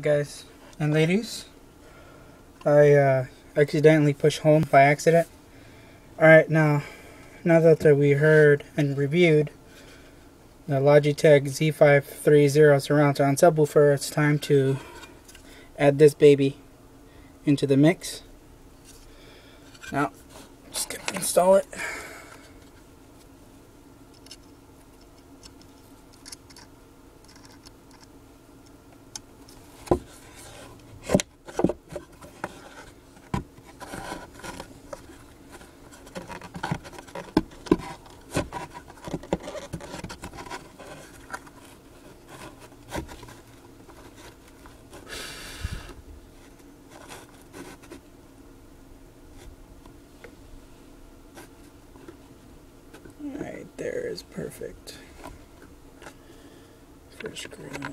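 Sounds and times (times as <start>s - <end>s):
scraping rustle: 29.5s - 45.1s, 46.4s - 48.1s.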